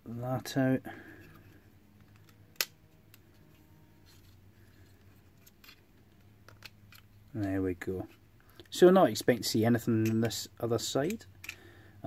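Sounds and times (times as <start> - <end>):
plastic housing clicks: 2.0 - 3.2.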